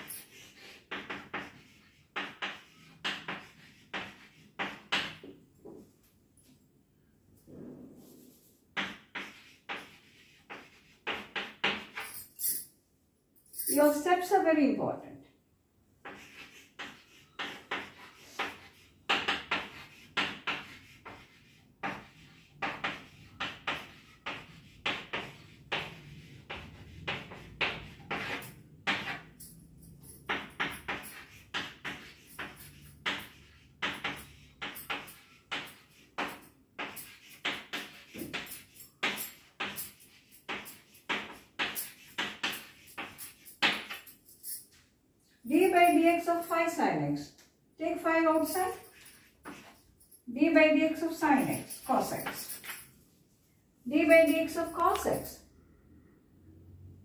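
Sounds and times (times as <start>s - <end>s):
chalk tapping and scraping on blackboard: 0.0s - 6.0s, 8.1s - 12.2s, 16.0s - 44.2s, 48.1s - 50.1s, 50.9s - 52.9s, 53.9s - 55.3s.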